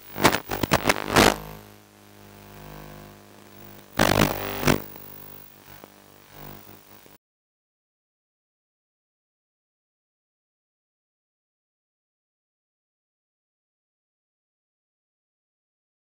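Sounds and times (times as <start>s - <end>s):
steady hum: 0.0s - 7.2s.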